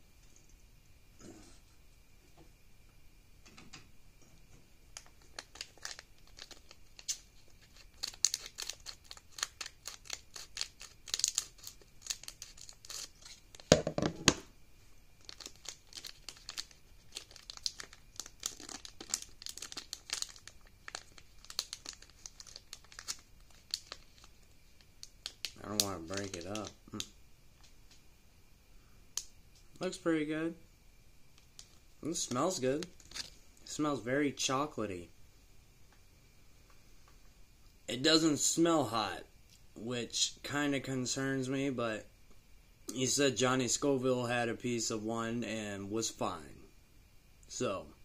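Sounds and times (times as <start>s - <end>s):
plastic packaging crinkling: 5.0s - 13.8s, 15.2s - 28.0s, 31.4s - 33.7s.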